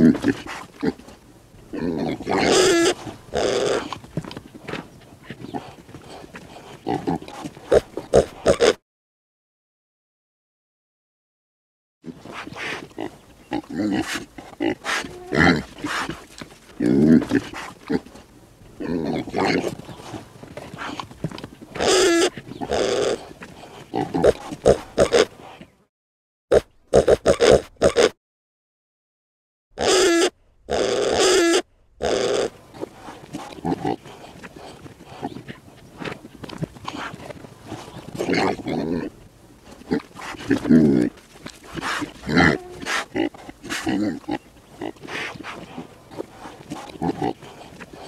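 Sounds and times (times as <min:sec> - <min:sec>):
pigs grunting and squealing: 0:00.0 - 0:04.1, 0:05.2 - 0:08.8, 0:12.1 - 0:18.2, 0:18.8 - 0:25.8, 0:26.5 - 0:28.2, 0:29.8 - 0:48.0
pig squealing: 0:01.8 - 0:04.0, 0:21.8 - 0:23.2, 0:29.8 - 0:32.6, 0:41.7 - 0:44.4.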